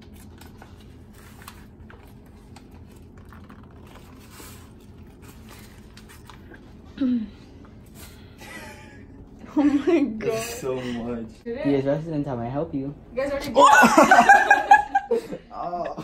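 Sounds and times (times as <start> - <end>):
paper crinkling and rustling: 0.0 - 6.6.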